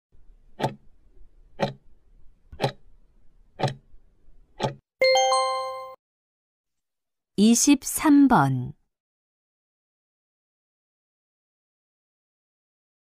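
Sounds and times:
clock ticking: 0:00.6 - 0:00.8, 0:01.6 - 0:01.8, 0:02.6 - 0:02.8, 0:03.6 - 0:03.8, 0:04.6 - 0:04.8
bright multi-tone chime: 0:05.0 - 0:06.0.

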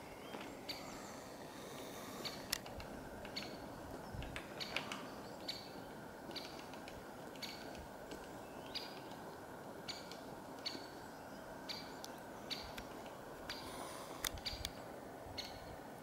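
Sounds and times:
low background hum: 0:00.0 - 0:16.0.

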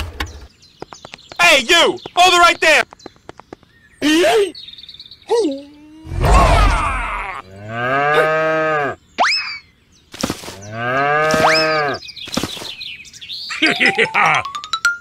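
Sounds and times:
cow mooing: 0:07.1 - 0:09.0, 0:10.6 - 0:12.0.

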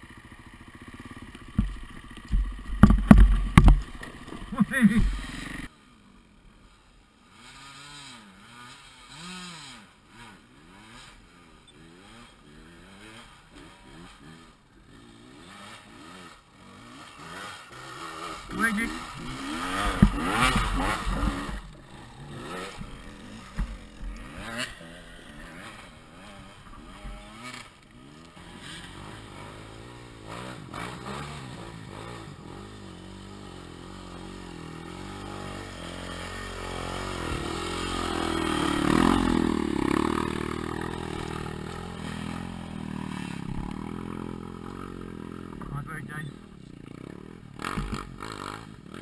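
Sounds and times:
dirt bike engine revving: 0:00.0 - 0:05.7, 0:07.2 - 0:49.0
knocks and clatter: 0:01.5 - 0:05.2.

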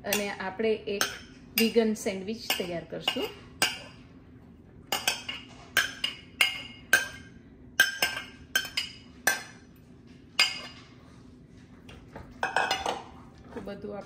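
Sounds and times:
spoon clinking against a bowl: 0:04.9 - 0:09.6.

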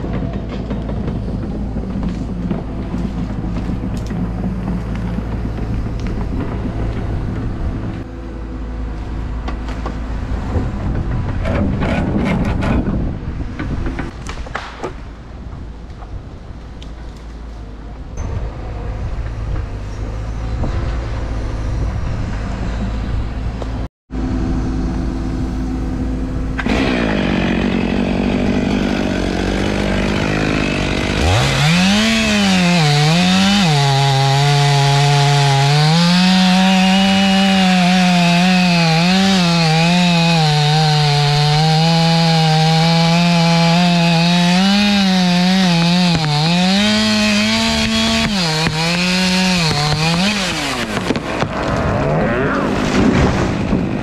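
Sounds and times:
chainsaw cutting into wood: 0:26.6 - 0:51.8.

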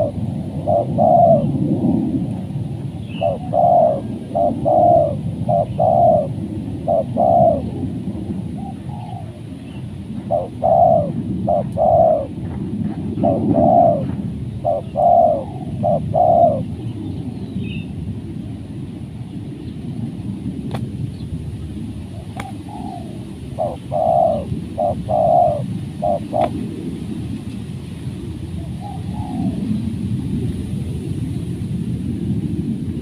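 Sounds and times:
dove cooing: 0:00.0 - 0:17.3, 0:22.1 - 0:26.9, 0:28.5 - 0:29.8
steady low rumble: 0:00.0 - 0:33.0.

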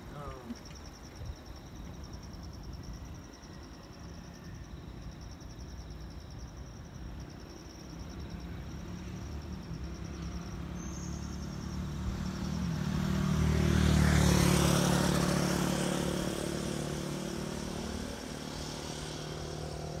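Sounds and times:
crickets chirping: 0:00.0 - 0:20.0
vehicle passing: 0:08.3 - 0:20.0.

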